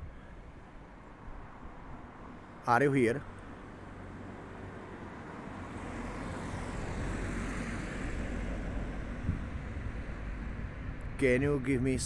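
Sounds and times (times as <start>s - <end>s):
passing vehicle rumble: 1.2s - 12.0s.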